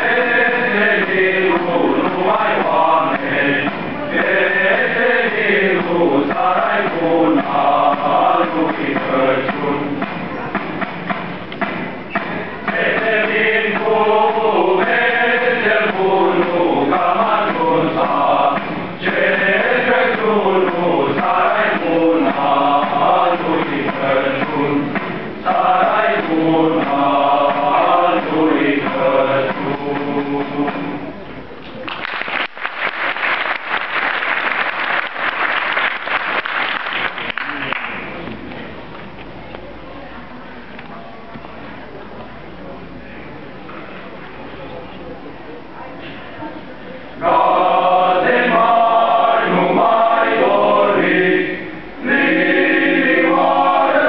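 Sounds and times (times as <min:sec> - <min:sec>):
male choir singing a carol: 0:00.0 - 0:10.1, 0:12.2 - 0:31.1, 0:47.2 - 0:54.0.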